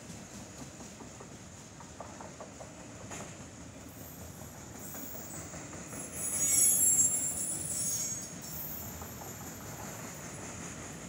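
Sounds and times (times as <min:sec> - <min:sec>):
train rolling rumble: 0:00.0 - 0:11.0
train wheels squealing: 0:03.8 - 0:11.0.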